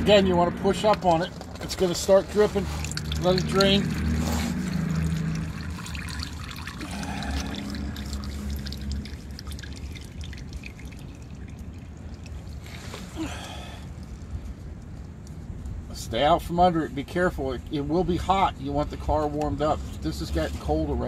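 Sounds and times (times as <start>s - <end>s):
steady low hum: 0.0s - 18.7s
oil pouring into drain pan: 0.9s - 13.0s.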